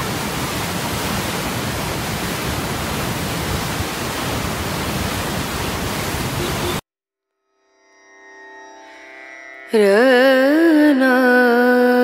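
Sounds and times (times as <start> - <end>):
floodwater rushing through spillway: 0.0 - 6.8.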